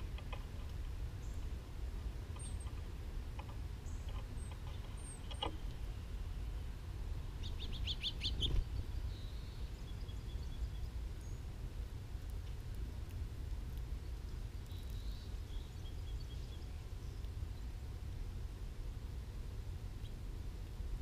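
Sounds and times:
songbirds chirping: 0.0 - 18.2
steady low rumble: 0.0 - 21.0.

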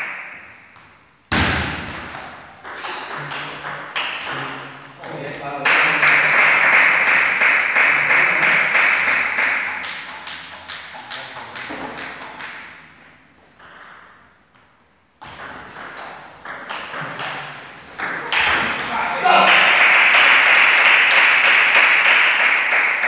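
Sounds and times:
brief high squeak: 2.8 - 3.6.

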